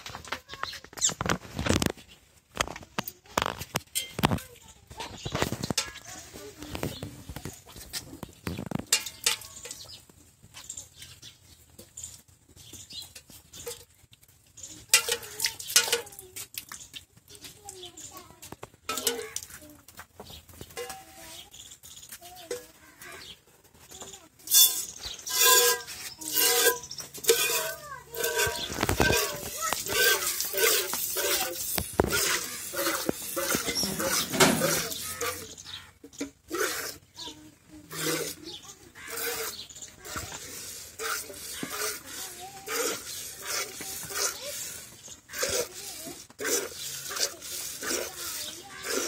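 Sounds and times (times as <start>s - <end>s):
pail ringing: 8.9s - 9.9s, 18.9s - 19.5s, 24.5s - 35.6s
milk squirting into steel pail: 24.5s - 35.5s.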